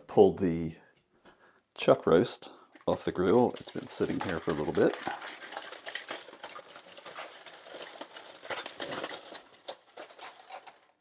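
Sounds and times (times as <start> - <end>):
aluminium foil crinkling: 2.6 - 11.0.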